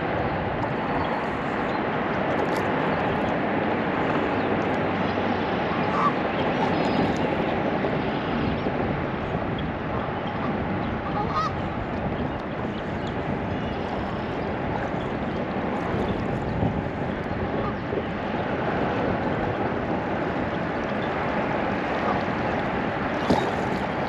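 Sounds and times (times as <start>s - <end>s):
steady rushing noise: 0.0s - 24.0s
geese honking: 5.8s - 6.2s, 11.0s - 11.6s.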